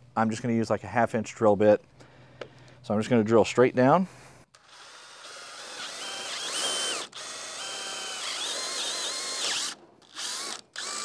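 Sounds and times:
power drill boring through wood: 0:04.5 - 0:11.0.

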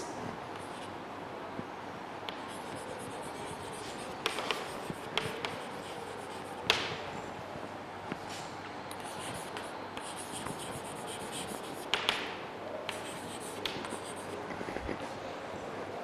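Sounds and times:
chalk scratching on chalkboard: 0:02.3 - 0:06.8, 0:09.0 - 0:12.0, 0:12.9 - 0:15.0
chalk tapping on chalkboard: 0:02.3 - 0:06.9, 0:08.9 - 0:12.3, 0:12.9 - 0:14.6.

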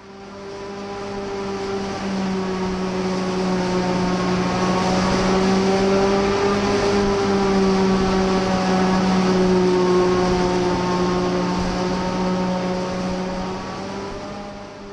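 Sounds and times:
forage harvester running: 0:00.0 - 0:14.9.

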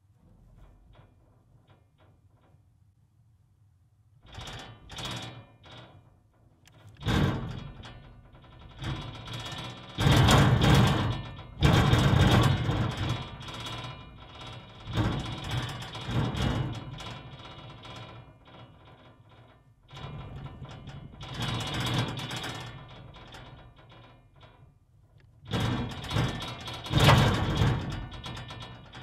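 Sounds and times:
manhole cover clanking and rattling: 0:25.5 - 0:29.0.

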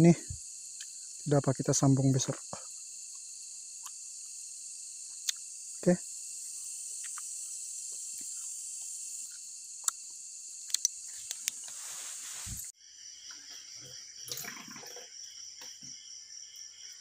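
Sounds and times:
night insects chirring: 0:00.0 - 0:17.0
sharp insect clicks: 0:00.4 - 0:11.8.

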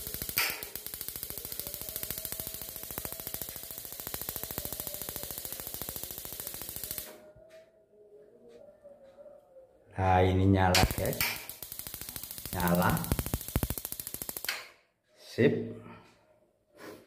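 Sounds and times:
gas igniter clicking rapidly: 0:00.0 - 0:07.1, 0:10.8 - 0:14.6.

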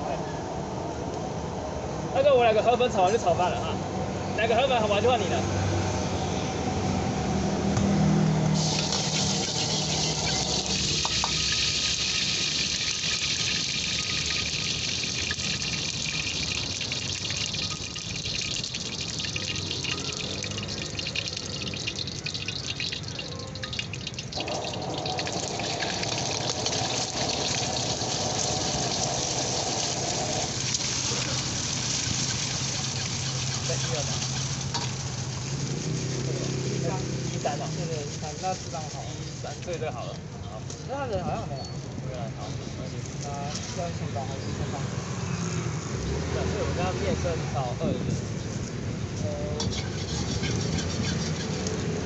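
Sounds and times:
eggs sizzling in oil: 0:08.6 - 0:38.7, 0:49.6 - 0:52.0
oil hissing in a wok: 0:08.6 - 0:39.7
metal ladle stirring: 0:08.7 - 0:35.1, 0:49.6 - 0:51.8.

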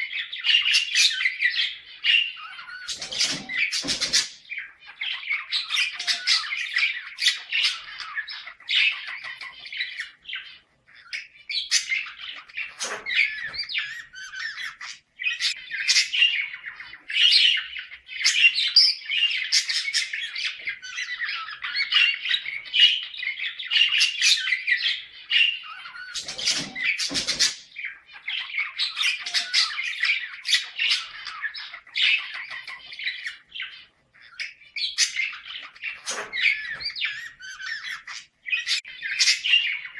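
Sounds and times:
budgerigars chattering and warbling: 0:00.0 - 0:39.9.

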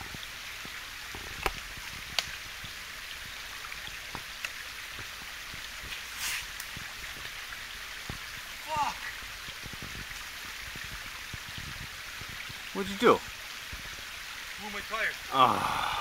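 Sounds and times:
stream running over rocks: 0:00.0 - 0:16.0
brief hiss: 0:05.9 - 0:06.6.

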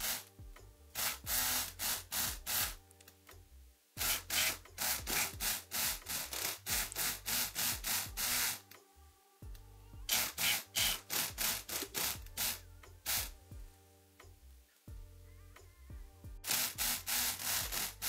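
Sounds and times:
electric lock pick gun buzzing: 0:01.0 - 0:02.8, 0:04.0 - 0:08.6, 0:10.1 - 0:13.3, 0:16.4 - 0:18.0.

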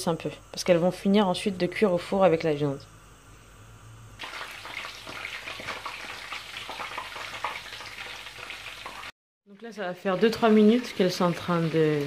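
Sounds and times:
oil sizzling and crackling: 0:04.2 - 0:09.2.

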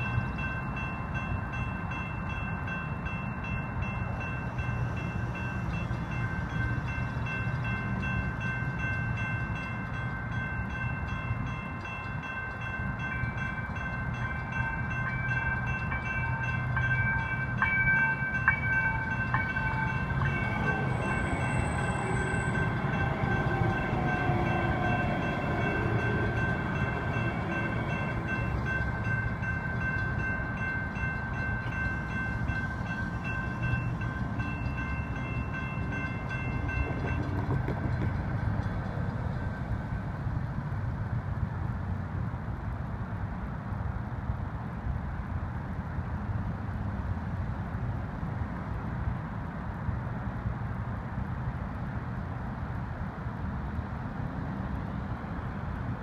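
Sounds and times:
electronic crossing bells ringing: 0:00.0 - 0:38.0
light rail train whine: 0:00.0 - 0:56.0.

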